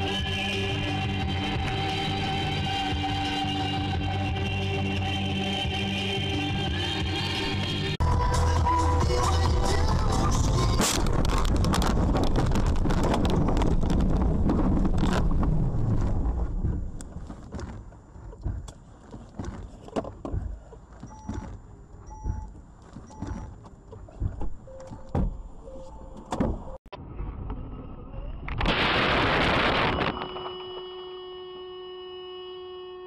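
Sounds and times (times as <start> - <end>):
road and wind noise: 0.0 - 30.9
loud rumbling: 8.0 - 17.4
knocks and rattles: 10.9 - 25.4
short electronic beeps: 21.1 - 21.5, 22.1 - 22.5.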